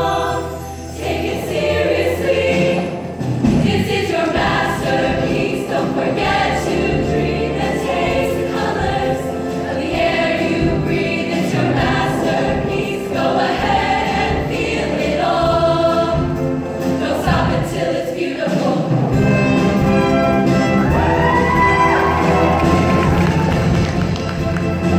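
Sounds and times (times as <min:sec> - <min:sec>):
female choir singing: 0:00.0 - 0:19.2
music: 0:00.0 - 0:24.9.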